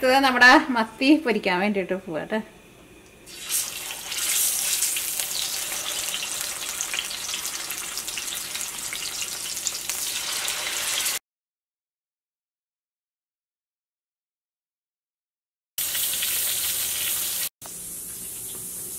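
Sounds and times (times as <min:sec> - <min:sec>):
fish sizzling in hot oil: 0:03.3 - 0:11.2, 0:15.8 - 0:18.9.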